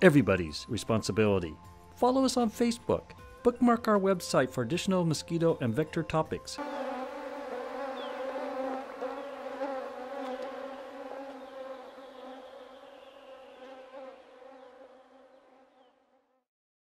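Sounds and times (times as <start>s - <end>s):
flying insect buzzing: 6.6s - 16.3s.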